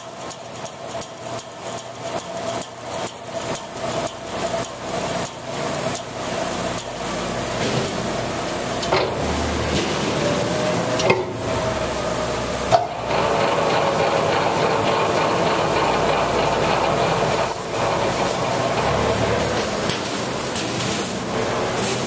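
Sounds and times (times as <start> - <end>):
bandsaw running: 9.1 - 22.0.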